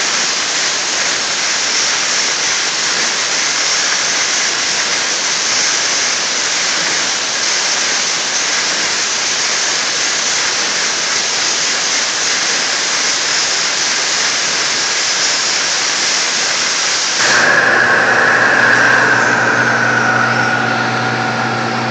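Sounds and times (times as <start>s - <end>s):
high-pressure water jet hissing: 0.0s - 21.9s
high whine: 17.2s - 21.9s
low machine hum: 17.2s - 21.9s.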